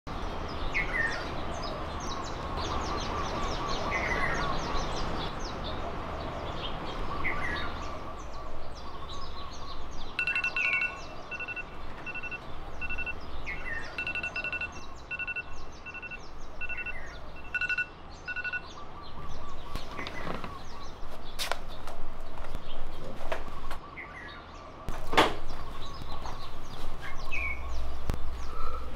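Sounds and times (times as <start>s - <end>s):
birds chirping: 0.1s - 28.9s
outdoor background noise: 0.1s - 28.9s
high beeps: 10.2s - 18.7s.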